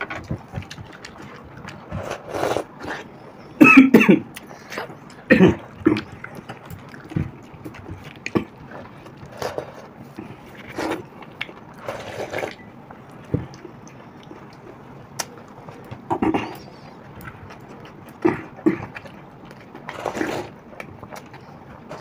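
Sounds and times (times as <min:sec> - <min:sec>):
chewing: 0:00.0 - 0:03.6, 0:04.3 - 0:22.0
slurping: 0:00.8 - 0:03.4, 0:04.4 - 0:12.7, 0:19.8 - 0:20.6.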